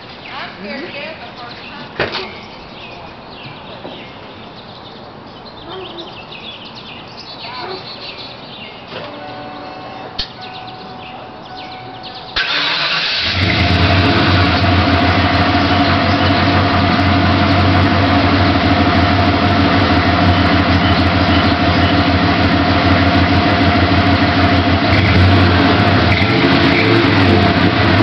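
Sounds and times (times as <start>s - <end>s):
truck exhaust idling: 9.4s - 28.0s.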